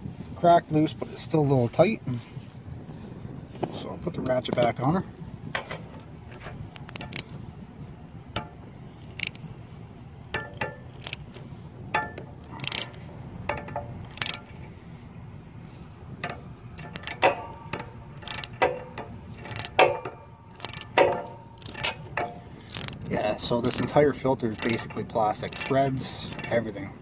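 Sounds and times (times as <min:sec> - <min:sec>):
socket wrench ratchet clicking: 0:05.9 - 0:07.3, 0:09.1 - 0:09.5, 0:10.3 - 0:14.7, 0:16.2 - 0:26.8
metal clinks of socket: 0:09.1 - 0:09.4, 0:12.0 - 0:14.6, 0:16.8 - 0:18.8, 0:19.4 - 0:23.0, 0:23.7 - 0:26.6.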